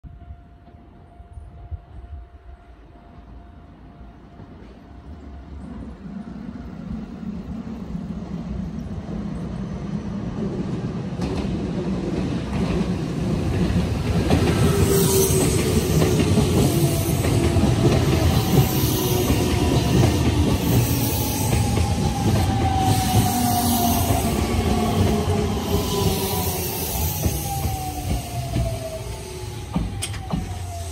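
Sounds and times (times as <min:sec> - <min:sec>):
electric train whine: 0:00.1 - 0:30.9
train wheels clattering: 0:11.1 - 0:30.9.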